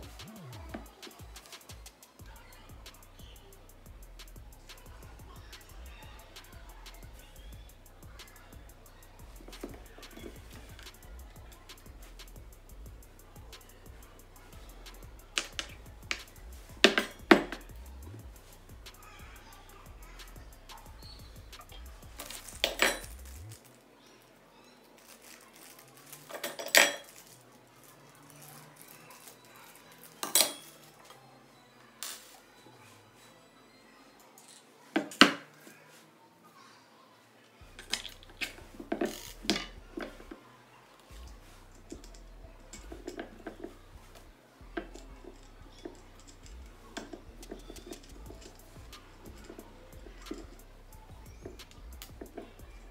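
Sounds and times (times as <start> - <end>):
metal parts clinking: 14.6 - 17.8, 21.6 - 23.7, 25.0 - 27.4, 28.4 - 30.9, 44.8 - 50.6.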